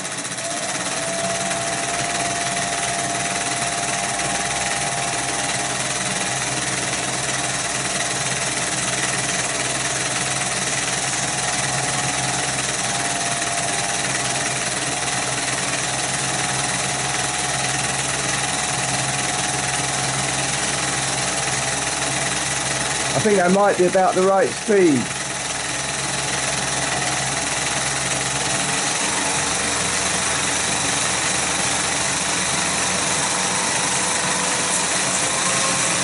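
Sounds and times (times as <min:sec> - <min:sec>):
film projector whirring: 0:00.0 - 0:36.0.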